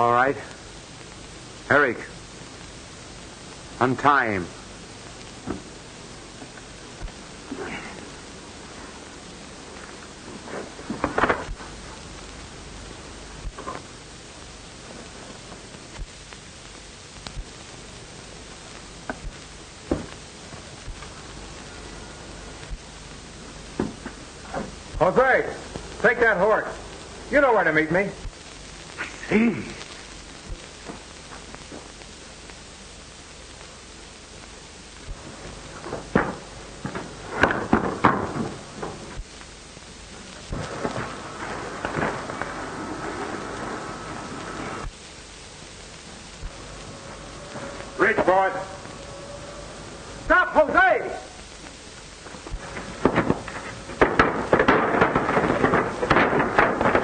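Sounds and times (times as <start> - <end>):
film soundtrack hiss: 0.0 - 57.0
sharp knocks and thumps: 52.6 - 57.0.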